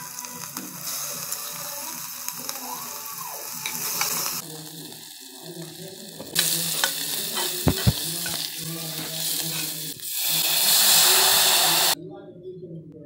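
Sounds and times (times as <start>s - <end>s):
spices sizzling in hot oil: 0.0s - 12.0s
spoon knocking on pot: 7.6s - 8.4s.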